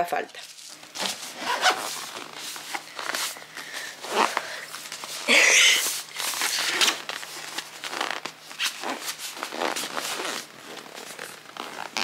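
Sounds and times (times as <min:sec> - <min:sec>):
zipper pulled in short tugs: 0:01.3 - 0:02.0.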